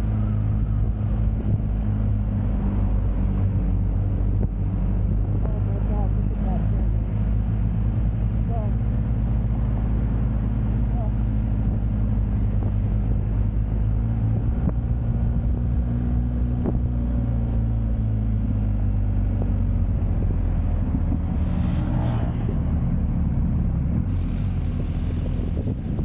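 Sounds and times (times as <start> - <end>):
motorcycle engine running: 22.4 - 26.0
wind rushing past: 23.6 - 26.0.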